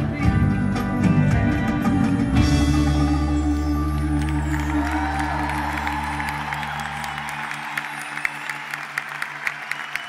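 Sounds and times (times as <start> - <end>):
crowd applauding: 3.8 - 10.0.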